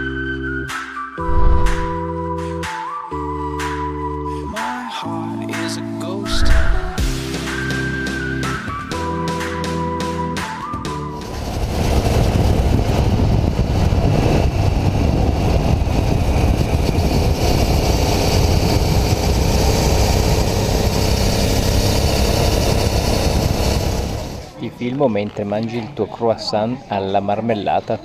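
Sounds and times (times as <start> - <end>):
motorcycle engine drone: 1.2 - 2.0, 6.3 - 7.3, 11.2 - 24.5
wind and road noise: 1.2 - 2.0, 6.3 - 7.1, 11.2 - 24.6.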